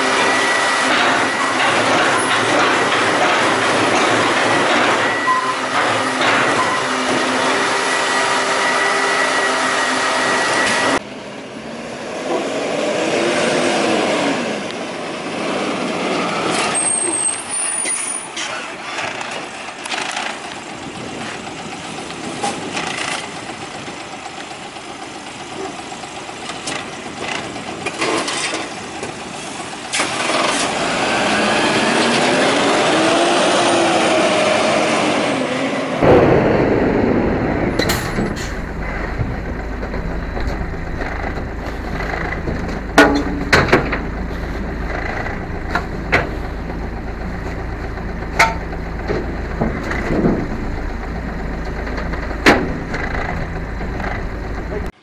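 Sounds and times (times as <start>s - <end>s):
hydraulic whine: 0.0s - 11.0s, 36.0s - 55.0s
diesel engine idling: 19.5s - 28.0s, 28.7s - 29.9s, 36.0s - 55.0s
sharp metallic clanks: 36.0s - 54.9s.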